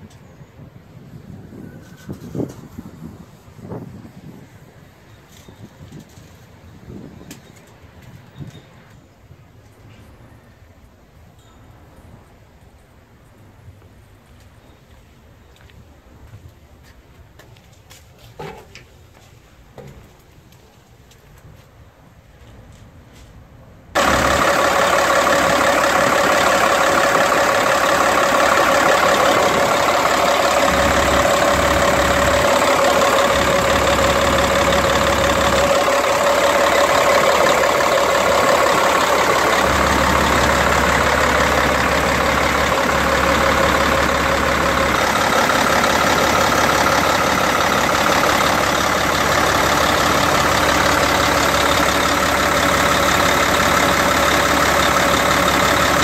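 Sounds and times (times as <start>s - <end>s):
diesel engine idling: 24.0s - 56.0s
steady whine: 24.0s - 56.0s.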